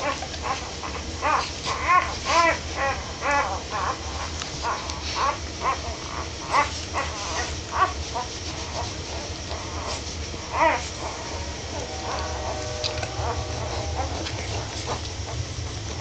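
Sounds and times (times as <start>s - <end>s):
puppies squeaking and whimpering: 0.0s - 16.0s.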